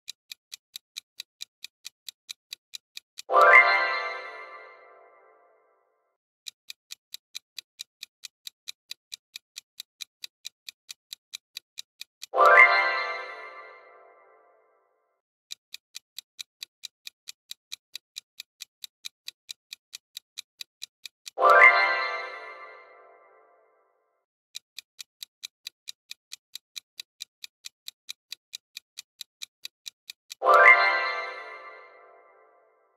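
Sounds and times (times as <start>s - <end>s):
countdown timer ticking: 0.3s - 5.4s, 6.6s - 14.5s, 15.7s - 23.6s, 24.6s - 32.7s
chime: 3.3s - 5.5s, 12.4s - 14.6s, 21.4s - 23.6s, 30.4s - 32.8s.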